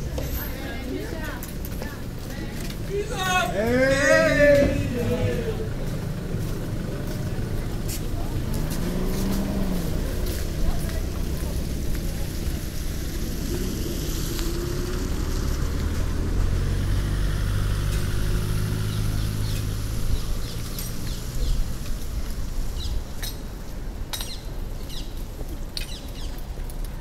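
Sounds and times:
small birds chirping: 17.9 - 21.8, 24.2 - 26.5.

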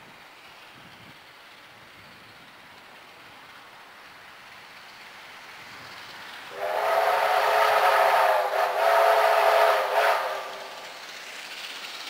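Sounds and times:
steam locomotive whistle: 6.5 - 11.0.

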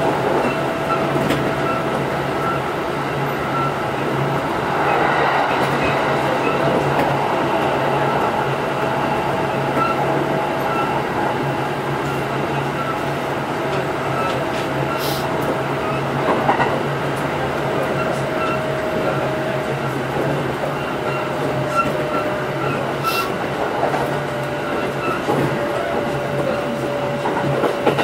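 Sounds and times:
train wheels clacking over rail joints: 12.0 - 28.0.

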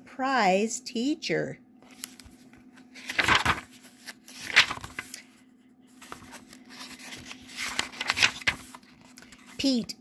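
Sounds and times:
paper pages rustling and flapping: 1.8 - 5.3, 5.9 - 9.8.

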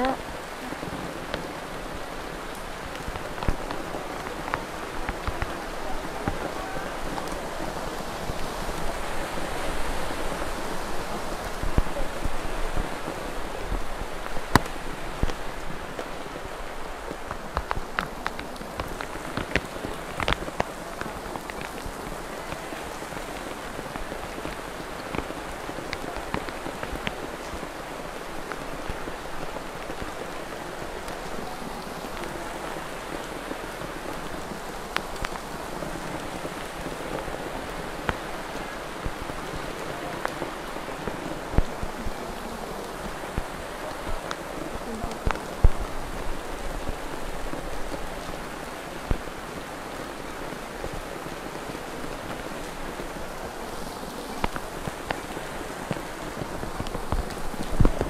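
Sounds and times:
water pattering and splashing: 0.0 - 58.0.

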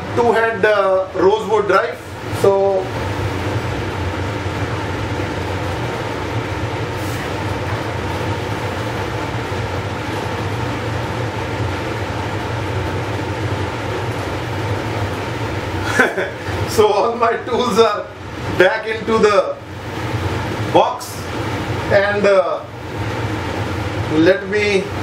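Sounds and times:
clean hood blower humming: 0.0 - 25.0.

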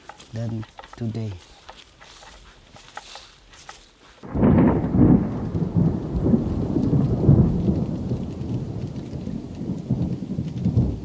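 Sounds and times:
thunder rumbling: 4.2 - 11.0.

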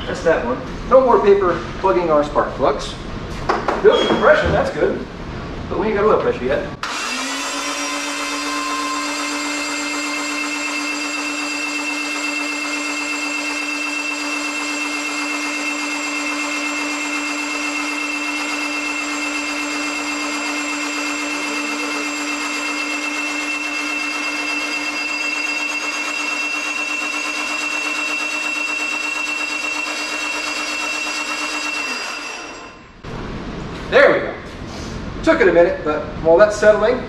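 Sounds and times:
starter motor cranking engine: 18.5 - 32.7.

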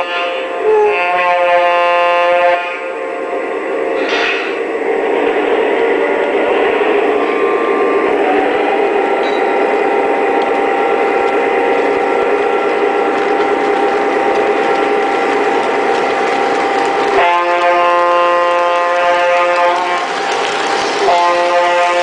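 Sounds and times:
chord-like train horn: 0.0 - 3.2, 17.0 - 20.1, 21.0 - 22.0
diesel engine sound effect: 2.6 - 22.0
model train wheels and motor: 8.2 - 22.0.

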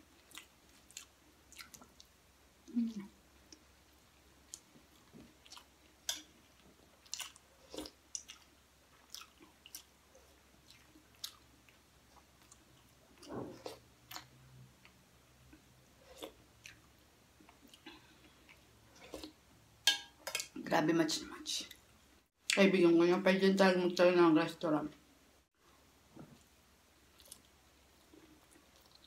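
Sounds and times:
faint chewing: 0.0 - 3.7, 4.4 - 19.4, 26.2 - 29.0.

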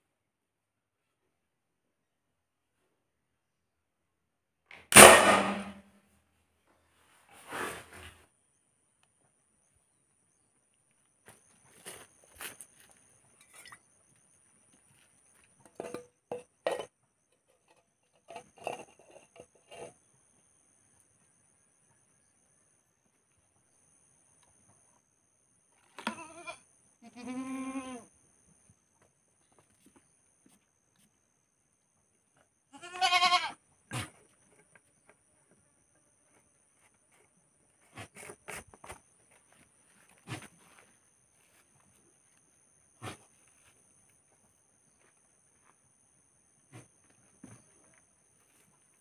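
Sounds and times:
goat bleating: 26.0 - 28.1, 32.7 - 33.6.

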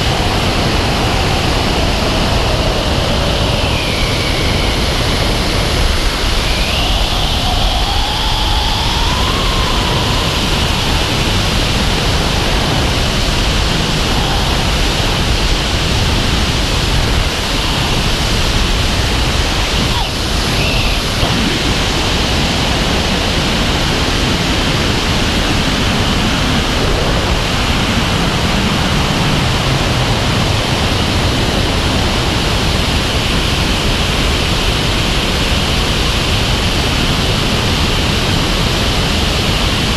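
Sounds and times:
wind rushing over microphone: 0.0 - 39.9
high whistle: 6.4 - 10.4.

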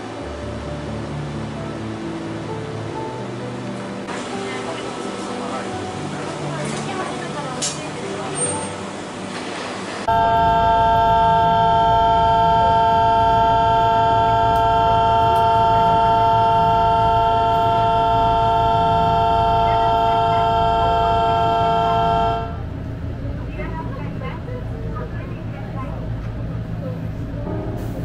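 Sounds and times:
station departure signal ringing: 10.1 - 22.9.

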